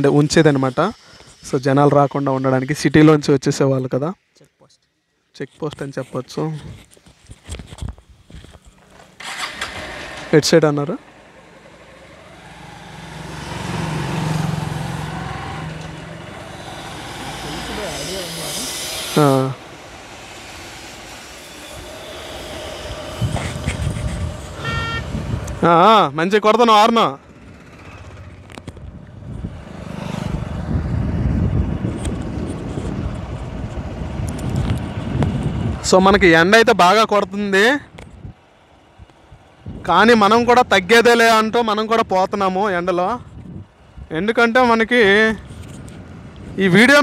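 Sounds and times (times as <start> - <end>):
motorcycle engine pulling away: 8.4 - 26.0, 27.0 - 35.8
wind rushing over microphone: 18.7 - 25.8, 28.2 - 36.6, 37.9 - 47.0.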